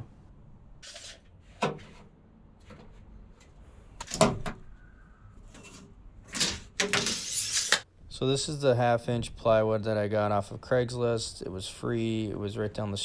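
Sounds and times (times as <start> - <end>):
tape measure scraping plastic: 6.3 - 7.8.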